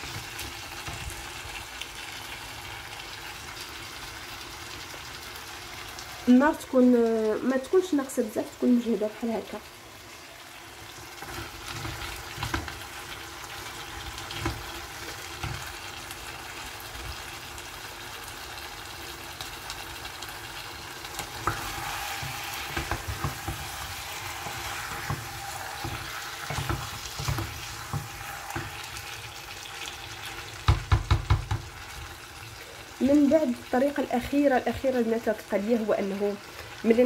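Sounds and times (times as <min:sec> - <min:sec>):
food sizzling in a pot: 0:00.0 - 0:37.0
wooden spoon knocking pot: 0:30.6 - 0:31.7.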